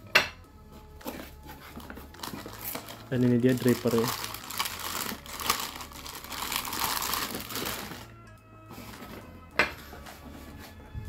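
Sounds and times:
background music: 0.0 - 11.0
plastic bag crinkling: 1.7 - 8.1.

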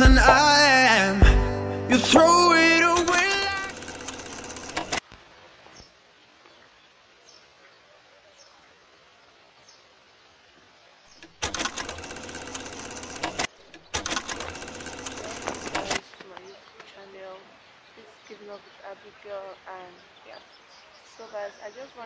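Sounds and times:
rapid clattering rattle: 3.2 - 5.0, 11.2 - 16.0.

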